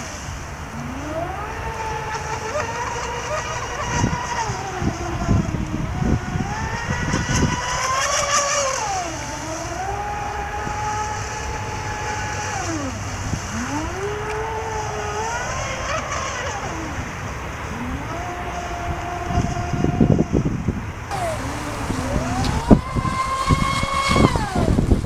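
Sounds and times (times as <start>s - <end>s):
electric motor whining: 0.0s - 25.0s
low thumps: 21.1s - 25.0s.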